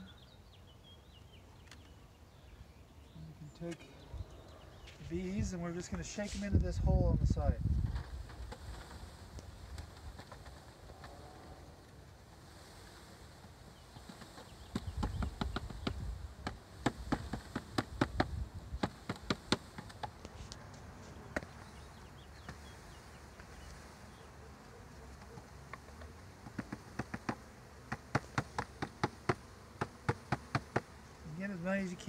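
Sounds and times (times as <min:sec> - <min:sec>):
honey bees buzzing: 0:07.9 - 0:32.0
sharp knocks of wooden box: 0:14.1 - 0:20.2, 0:26.4 - 0:30.9
dull thumps: 0:25.7 - 0:30.9.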